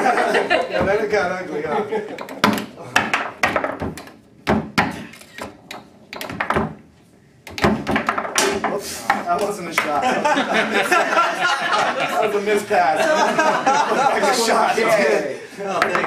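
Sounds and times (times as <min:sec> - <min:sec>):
men talking: 0:00.0 - 0:02.2, 0:08.6 - 0:16.0
men laughing: 0:00.0 - 0:03.0, 0:09.9 - 0:16.0
foosball knocks and clacks: 0:00.6 - 0:01.1, 0:02.1 - 0:10.0, 0:15.7 - 0:16.0.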